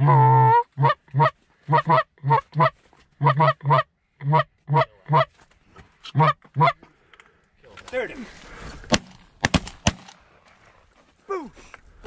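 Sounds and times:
goose honking: 0.0s - 5.3s, 6.1s - 6.8s.

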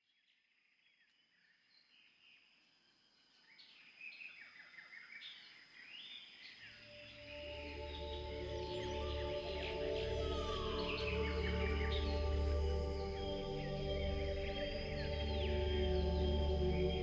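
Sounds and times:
birds chirping and singing: 3.6s - 17.0s
soft ambient music with drone: 6.6s - 17.0s.

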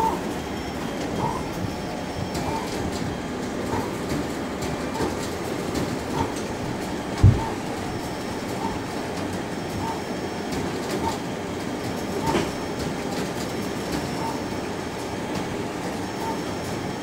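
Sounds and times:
mechanical whir: 0.0s - 17.0s
printer carriage sweeping: 0.0s - 17.0s
printer chirp: 0.0s - 17.0s
low thump: 7.2s - 7.5s.

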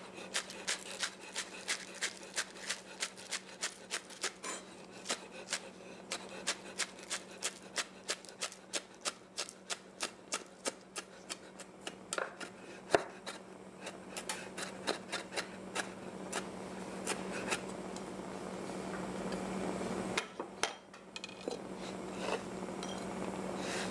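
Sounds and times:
knife chopping on wooden board: 5.1s - 13.4s.

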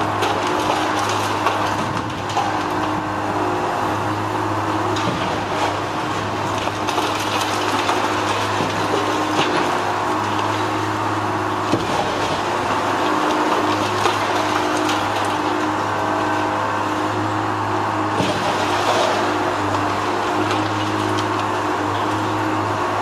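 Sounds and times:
heavy machine engine droning: 0.0s - 23.0s
concrete debris clattering: 5.0s - 10.8s, 11.7s - 15.8s, 18.2s - 22.2s.

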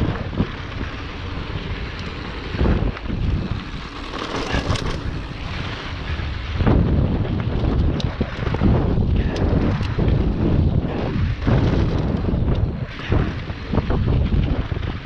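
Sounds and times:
bike tyres rumbling and rattling: 0.0s - 15.0s
wind rushing over microphone: 0.0s - 15.0s.

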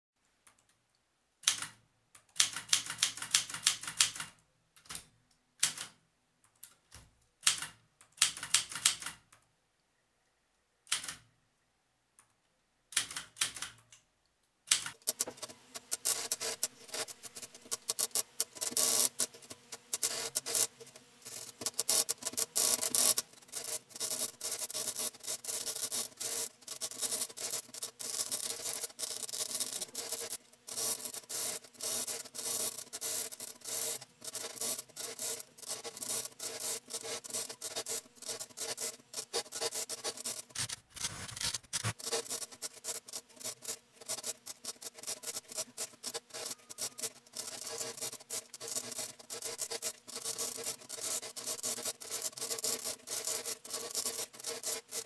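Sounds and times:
manual typewriter typing: 2.4s - 6.0s, 6.9s - 9.3s, 12.9s - 13.9s, 21.3s - 55.0s.

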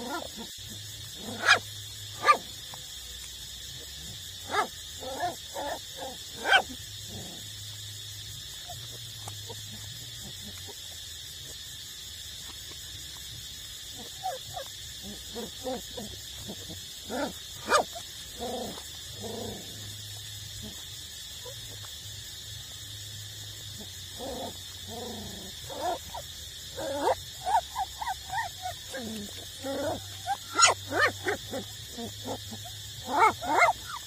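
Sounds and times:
puppies whining and yelping: 27.0s - 32.1s.

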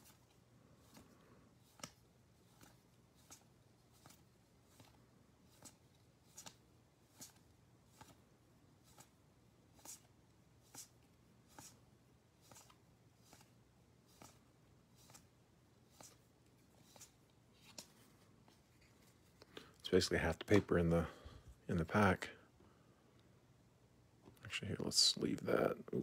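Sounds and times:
paper cards flicking: 0.0s - 8.2s, 12.4s - 14.4s
faint steady hum: 0.0s - 26.0s.

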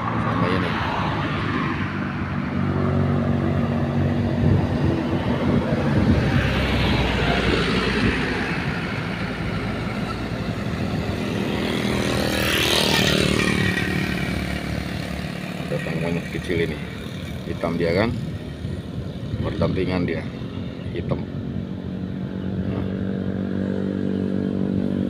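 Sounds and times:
vehicles passing: 0.0s - 25.0s.

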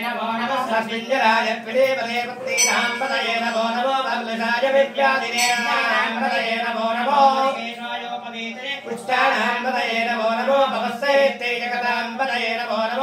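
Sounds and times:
men chanting: 0.0s - 13.0s
steady held drone note: 2.5s - 6.3s.

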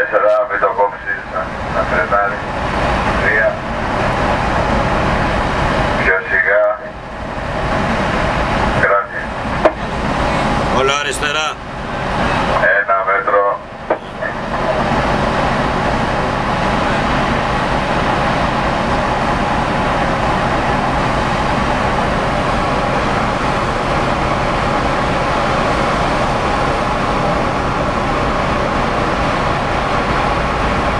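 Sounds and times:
ferry engines rumbling: 0.0s - 30.9s.

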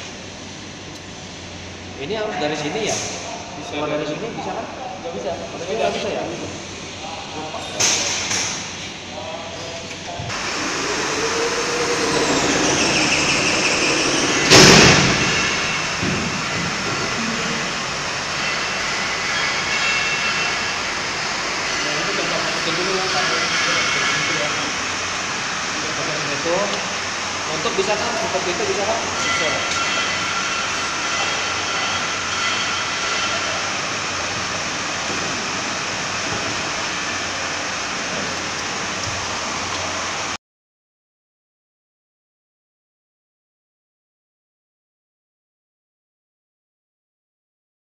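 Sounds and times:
industrial mechanical roar: 0.0s - 40.4s
mechanical whirr: 10.3s - 17.4s
faint high whines: 10.3s - 25.0s.

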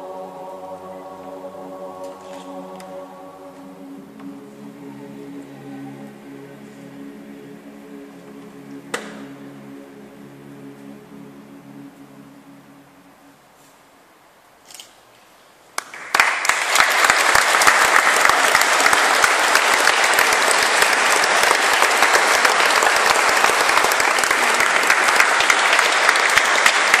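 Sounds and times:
audience applause: 15.8s - 27.0s
single clap: 15.8s - 27.0s.

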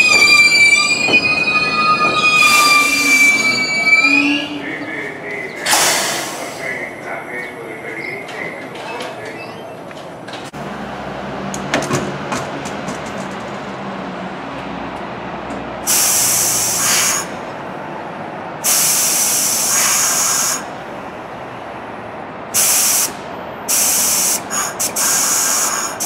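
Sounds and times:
compressed air hissing: 5.7s - 6.6s, 15.9s - 17.3s, 18.6s - 20.7s, 22.6s - 26.0s.

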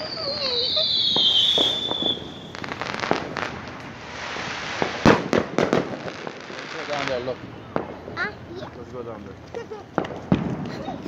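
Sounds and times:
firework whistle: 0.0s - 3.3s
firework bang: 0.0s - 8.3s, 10.0s - 11.0s
firework crackling: 0.0s - 11.0s
firework pops: 1.0s - 3.9s, 4.8s - 8.2s, 9.4s - 11.0s.

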